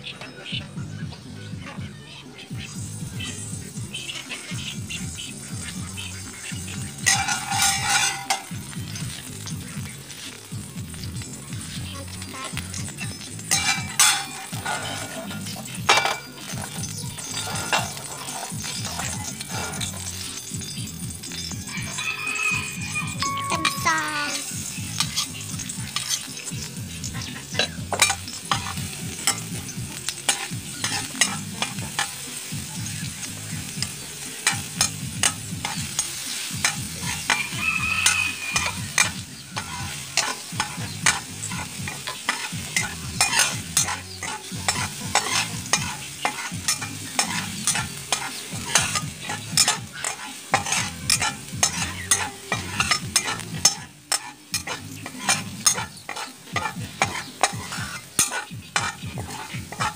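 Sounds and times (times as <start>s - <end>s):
food sizzling in a wok: 0.0s - 59.9s
metal spatula scraping pan: 3.4s - 59.9s.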